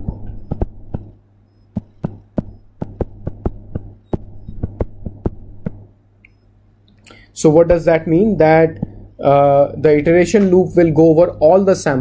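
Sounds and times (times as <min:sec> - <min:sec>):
stylus tapping on tablet screen: 0:00.0 - 0:05.9
low hum: 0:00.0 - 0:11.6.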